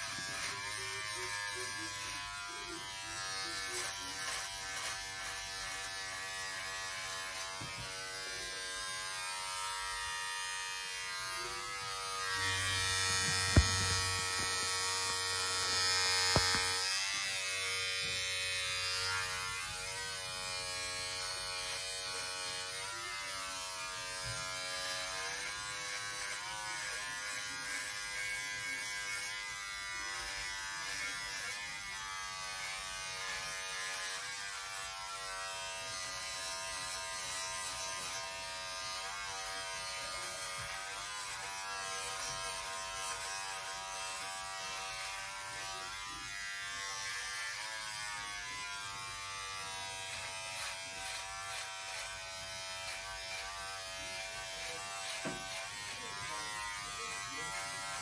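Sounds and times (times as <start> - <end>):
electric shaver humming: 0.0 - 58.0.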